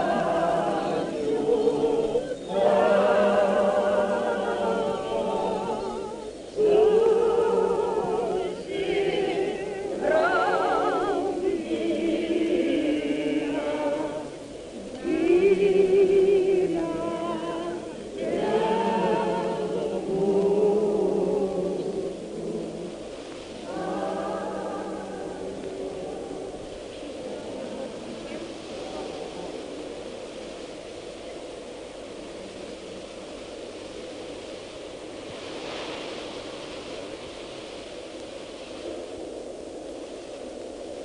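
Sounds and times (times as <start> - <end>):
choir singing: 0.0 - 29.4.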